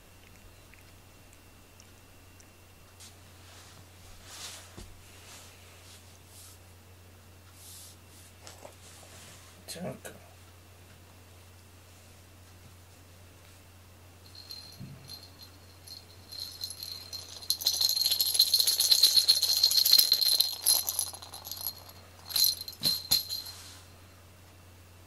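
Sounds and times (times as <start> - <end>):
jingle bell shaken: 14.3 - 23.7.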